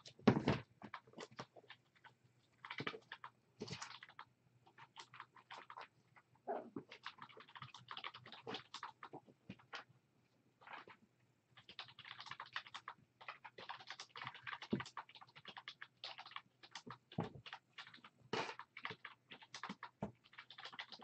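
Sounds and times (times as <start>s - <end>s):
kittens tapping and scratching: 11.6s - 21.0s.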